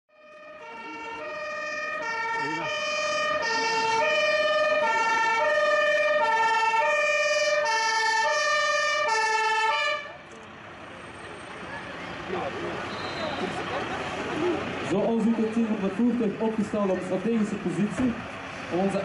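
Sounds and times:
fire engine two-tone siren: 0.1s - 10.2s.

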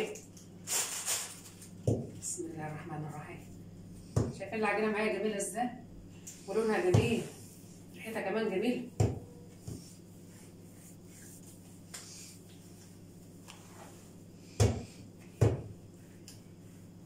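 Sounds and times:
low steady hum: 0.0s - 17.0s
dough thumping on worktop: 6.9s - 7.3s, 9.0s - 9.9s, 14.6s - 15.8s.

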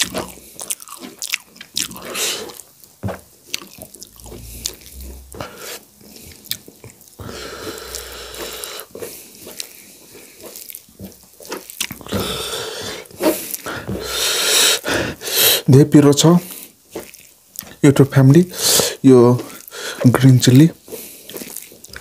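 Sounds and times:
wet chewing: 0.0s - 14.4s, 16.5s - 17.9s, 20.8s - 22.0s
breathy sound: 4.0s - 6.5s, 7.2s - 9.0s
lip-smacks and mouth clicks: 7.9s - 12.2s.

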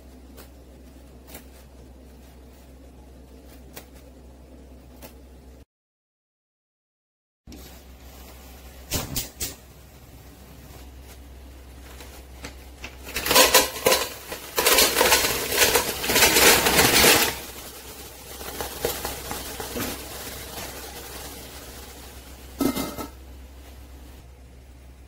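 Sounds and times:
mussel shells clattering into pot: 12.9s - 20.7s.

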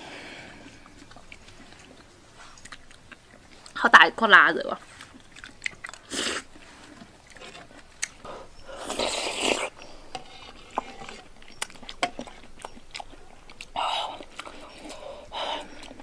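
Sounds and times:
chewing clicks: 0.5s - 3.8s, 4.8s - 16.0s
person slurping porridge: 6.0s - 16.0s.

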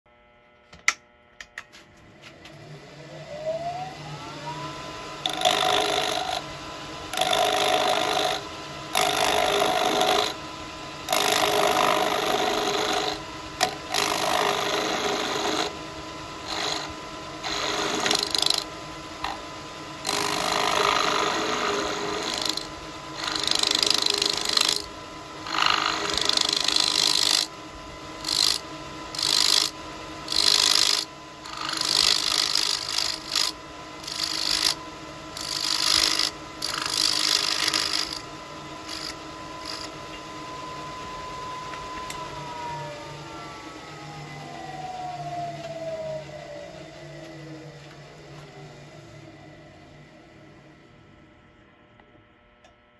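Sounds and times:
wood lathe motor whining: 2.3s - 27.6s, 28.2s - 50.6s
turning tool scraping wood: 28.2s - 29.7s, 30.3s - 34.8s, 35.4s - 38.2s, 38.9s - 40.0s.

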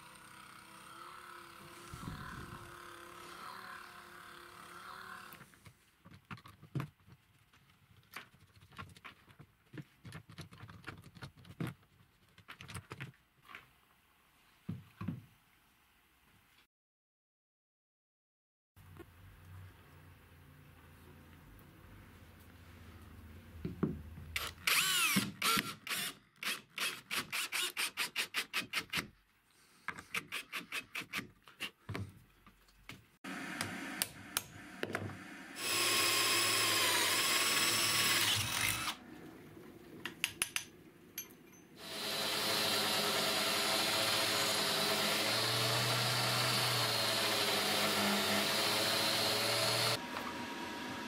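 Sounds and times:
drill boring through steel: 0.0s - 5.4s, 24.4s - 28.2s, 35.3s - 39.0s, 41.8s - 51.0s
cordless drill driving screw: 24.4s - 29.0s, 35.6s - 39.0s, 41.8s - 50.3s
belt sander grinding steel: 41.8s - 51.0s.

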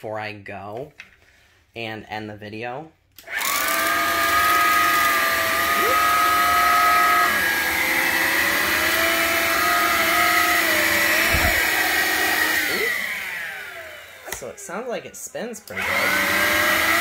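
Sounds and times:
vacuum cleaner motor whine: 3.2s - 14.8s, 15.7s - 17.0s.

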